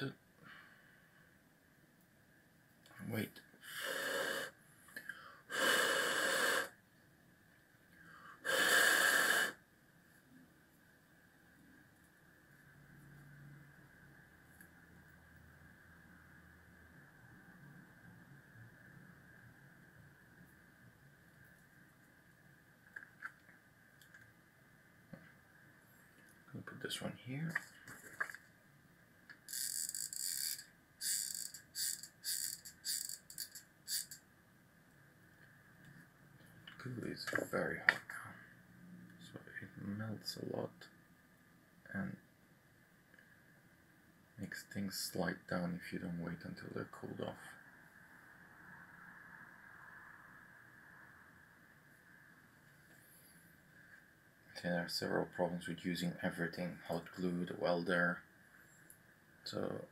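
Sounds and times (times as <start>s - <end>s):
faint in-breath: 0.4s - 1.3s, 3.6s - 6.4s, 8.0s - 8.5s
person blowing out hard: 5.5s - 6.8s, 8.4s - 9.6s.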